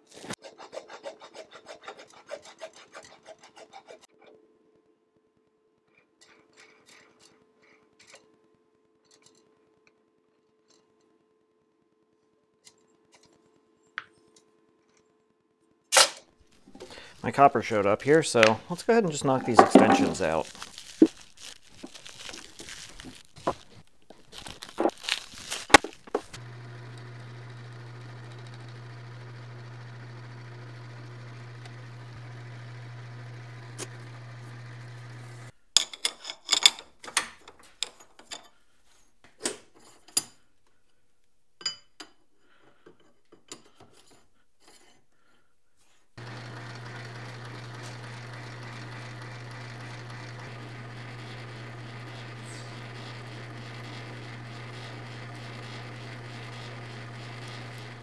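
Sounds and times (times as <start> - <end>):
metal lathe humming: 16.8 - 20.5, 26.2 - 35.5, 46.2 - 58.0.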